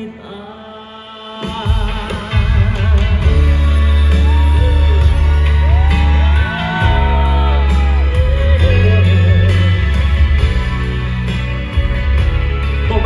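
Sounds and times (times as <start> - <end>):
man singing into microphone: 0.0 - 5.5, 6.4 - 10.0
live pop band music: 0.0 - 13.0
audience shouts and whoops: 3.2 - 11.1.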